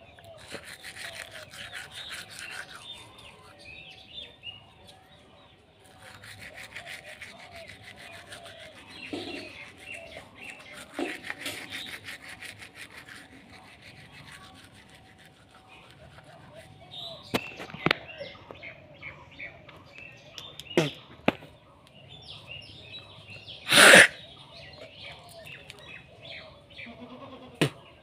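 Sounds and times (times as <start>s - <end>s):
birds chirping: 0.0s - 28.0s
toothbrush scrubbing teeth: 0.3s - 3.8s, 5.8s - 17.2s.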